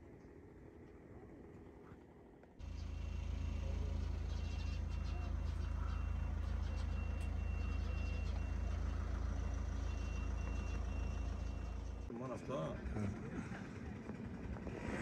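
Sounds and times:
diesel engine running: 0:02.6 - 0:15.0
reversing alarm beeps: 0:04.4 - 0:12.0.

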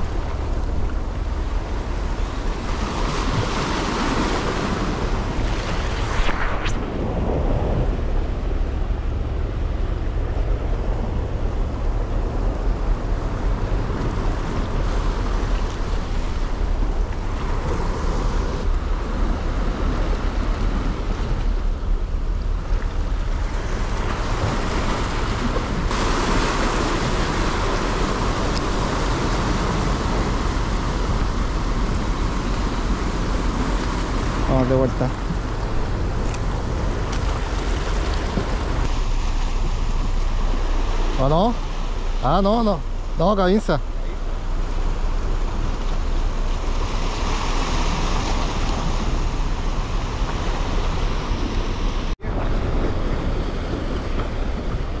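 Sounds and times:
wind buffeting microphone: 0:00.0 - 0:41.1
surf washing against rocks: 0:00.0 - 0:55.0.

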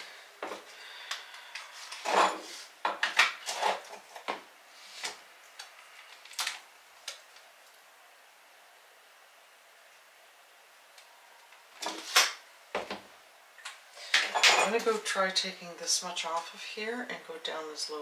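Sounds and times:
tiles clinking on countertop: 0:14.1 - 0:15.0.

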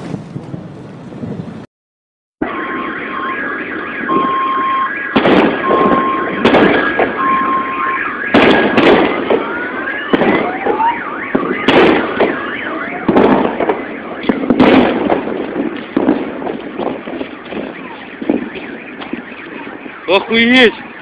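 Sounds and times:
car alarm rising whoops: 0:02.4 - 0:14.4
two-tone car alarm: 0:02.4 - 0:15.8, 0:17.3 - 0:21.0
loud sharp bangs: 0:02.4 - 0:20.8.

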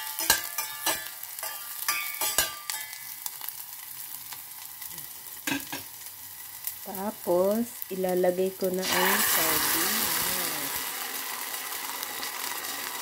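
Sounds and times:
metal spoon scraping a pan: 0:00.0 - 0:03.7
onion sizzling in oil: 0:00.0 - 0:13.0.

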